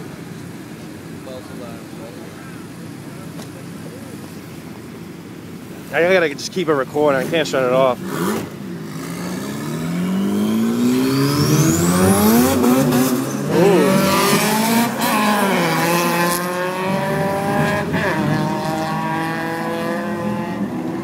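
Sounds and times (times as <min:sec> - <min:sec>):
car engine revving: 0:06.0 - 0:21.0.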